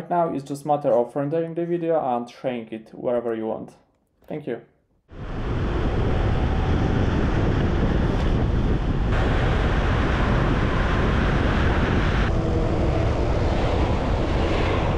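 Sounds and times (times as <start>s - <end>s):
low rumble of road noise: 5.1s - 14.9s
wind rushing over microphone: 5.1s - 14.9s.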